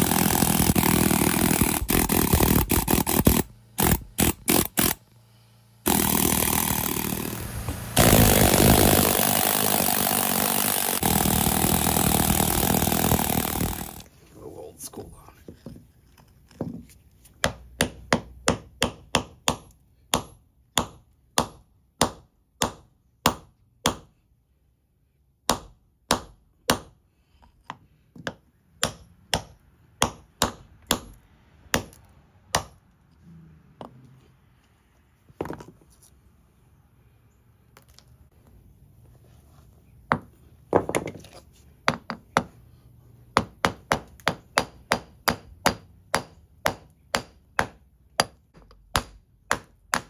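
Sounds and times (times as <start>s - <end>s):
hammer striking steel chisel: 17.4s - 24.2s, 27.6s - 32.8s.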